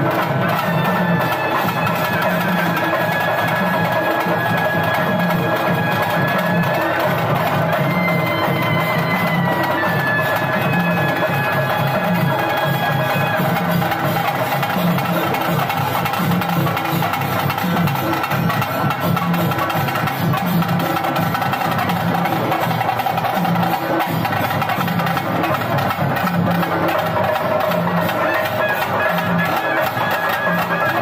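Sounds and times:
reed wind instrument melody: 0.0 - 31.0
rhythmic drumming: 0.0 - 31.0.

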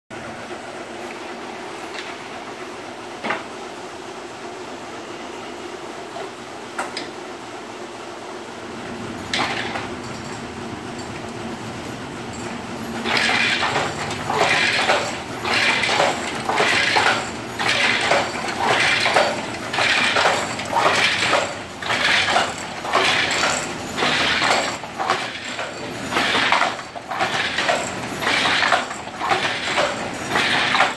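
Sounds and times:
hand loom clattering: 9.3 - 11.2, 12.9 - 30.9.

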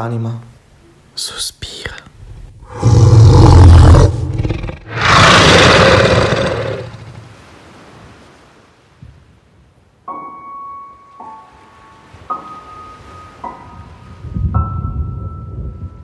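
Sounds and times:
deep roaring rushes: 2.6 - 7.3.

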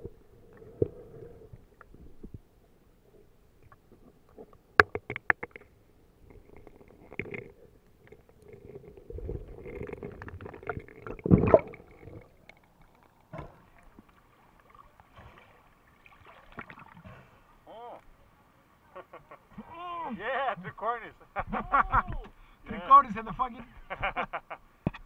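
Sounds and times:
underwater churning rush: 8.5 - 12.8.

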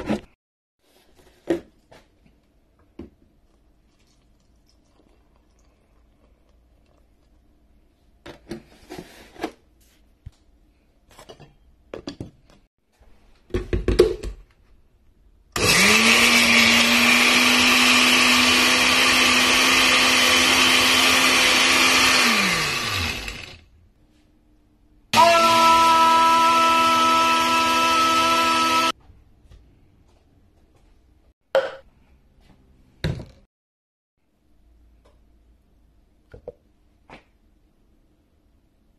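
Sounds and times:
blender motor running: 15.6 - 23.6, 25.2 - 29.0.

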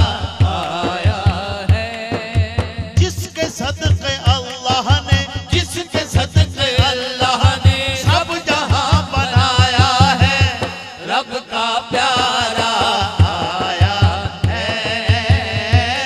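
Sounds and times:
man singing through loudspeakers: 0.0 - 16.0
low pulsing beat: 8.8 - 10.9.

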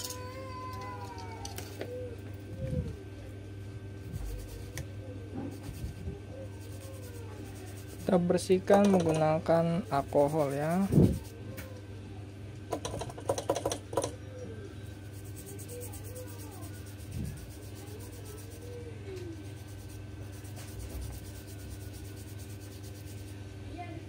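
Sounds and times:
steady low hum: 0.0 - 24.0
toothbrush scrubbing circuit board: 4.0 - 4.9, 5.5 - 9.2, 9.8 - 11.3, 15.0 - 18.8, 19.4 - 23.4.

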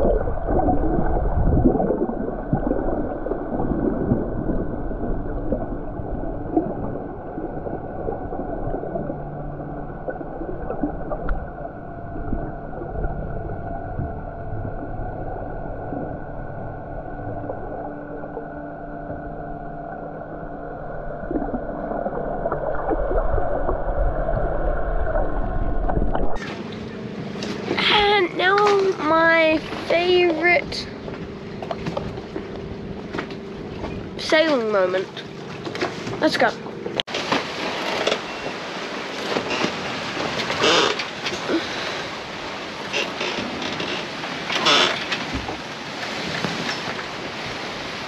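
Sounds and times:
water gurgling underwater: 0.0 - 35.5
low hums shifting pitch: 0.0 - 46.0.

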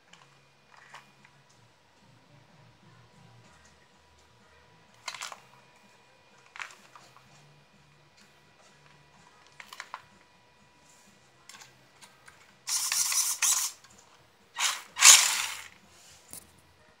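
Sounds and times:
electric motor and gearbox whirring: 12.4 - 14.0, 14.6 - 15.8.

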